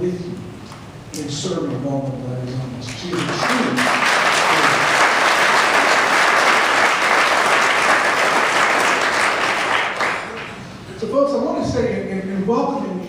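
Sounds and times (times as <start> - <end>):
audience applauding: 3.0 - 10.7.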